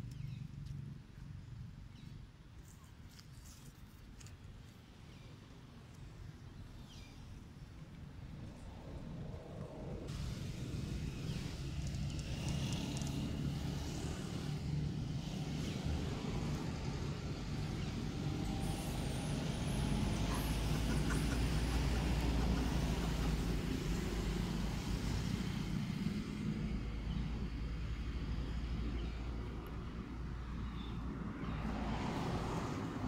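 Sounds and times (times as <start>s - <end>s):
low outdoor rumble: 7.3s - 31.8s.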